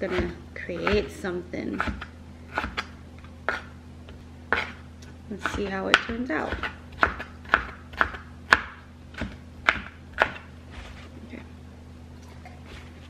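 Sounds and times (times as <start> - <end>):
knife chopping on plastic board: 0.0 - 1.1, 1.8 - 4.8, 5.4 - 10.5.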